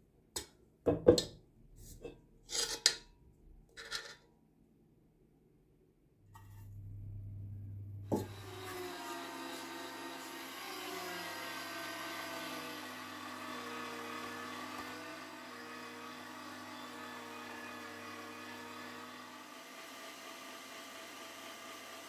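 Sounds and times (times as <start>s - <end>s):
electric meat grinder motor: 8.1s - 22.0s.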